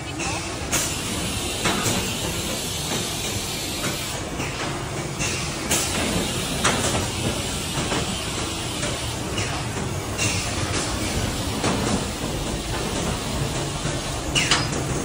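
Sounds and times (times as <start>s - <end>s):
machinery motor hum and hiss: 0.0s - 15.0s
machine clacks and knocks: 0.7s - 15.0s.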